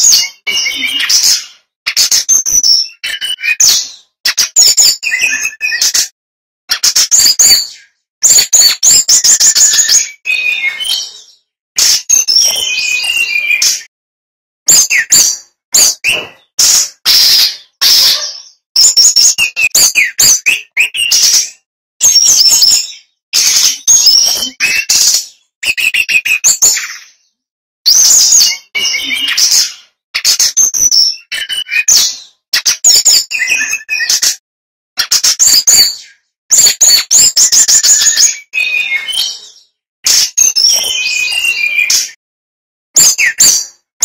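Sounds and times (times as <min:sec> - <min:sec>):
bird singing chirps and warbles: 0:00.0 - 0:06.1, 0:06.7 - 0:13.9, 0:14.7 - 0:34.4, 0:35.0 - 0:42.2, 0:43.0 - 0:43.8
bird singing: 0:06.8 - 0:13.9, 0:35.4 - 0:39.7, 0:40.4 - 0:42.2.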